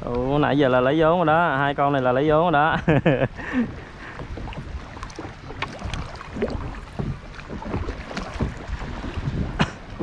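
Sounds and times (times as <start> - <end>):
moving water wash: 3.0 - 10.0
paddle splashes and drips: 3.4 - 10.0.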